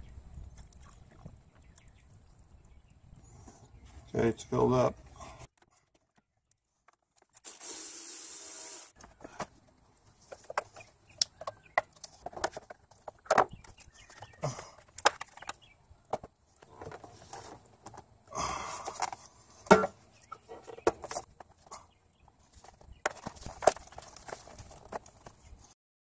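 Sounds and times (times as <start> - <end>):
plastic parts clicking and knocking: 10.3 - 17.1, 22.6 - 25.4.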